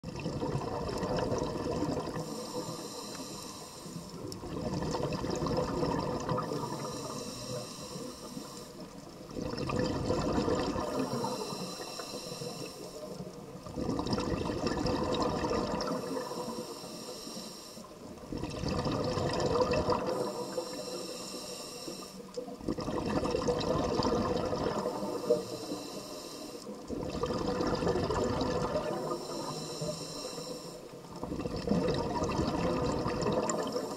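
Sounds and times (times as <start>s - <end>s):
gurgling exhaled bubbles: 0.0s - 2.8s, 4.1s - 7.2s, 8.8s - 11.5s, 13.2s - 16.5s, 18.1s - 20.7s, 22.4s - 25.5s, 26.8s - 29.7s, 30.9s - 33.9s
hissing regulator inhale: 1.9s - 4.5s, 5.8s - 9.1s, 10.8s - 13.6s, 15.8s - 18.2s, 20.0s - 22.6s, 24.7s - 27.0s, 28.0s - 31.3s, 33.5s - 33.9s.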